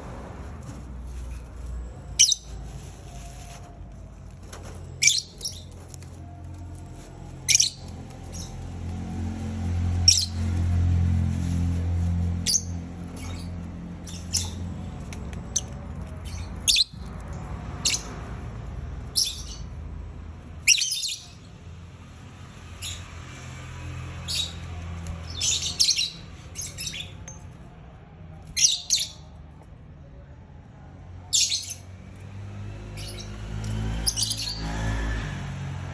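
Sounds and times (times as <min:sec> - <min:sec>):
lovebirds squawking chirps: 0:07.5 - 0:08.5.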